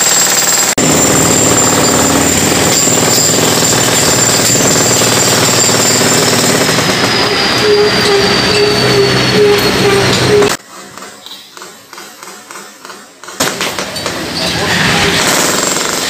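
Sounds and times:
jackhammer hammering concrete: 0.0 - 8.2, 15.1 - 16.0
high ringing tones: 0.8 - 10.6.

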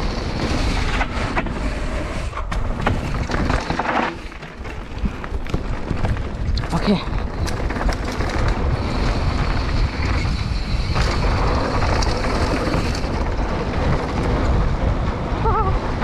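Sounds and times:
bike tyres rumbling on gravel: 0.0 - 16.0
wind on microphone: 4.8 - 16.0.

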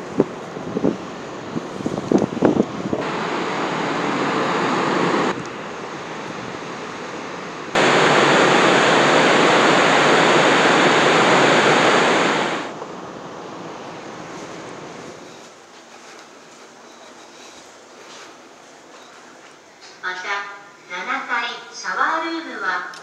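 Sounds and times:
wind on microphone: 0.0 - 5.5
rushing water: 2.7 - 12.8.

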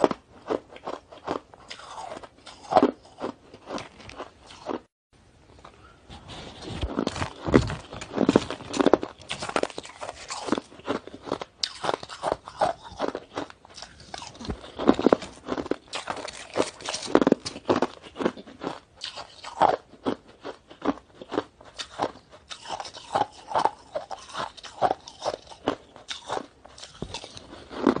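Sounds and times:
shaved ice being chewed: 0.0 - 4.8, 6.4 - 28.0.

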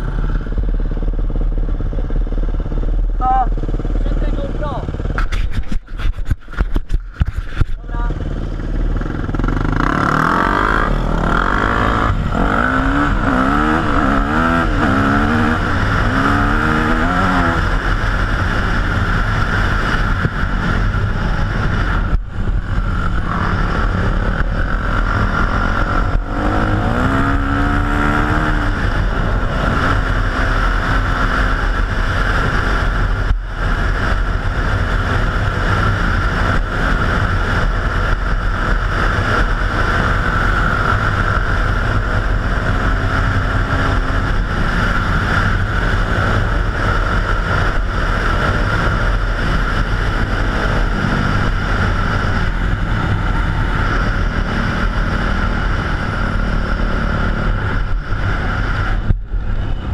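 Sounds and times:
dirt bike and quad engines revving: 0.0 - 59.9.

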